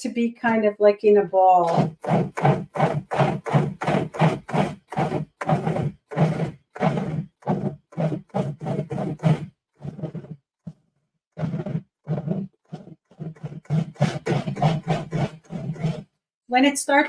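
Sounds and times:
food processor pulsing: 1.6 - 10.4, 11.4 - 16.1.

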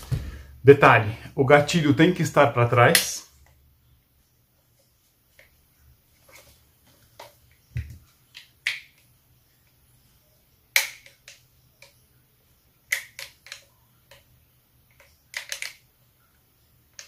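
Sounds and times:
gun parts clicking: 12.9 - 14.2, 15.0 - 15.8.

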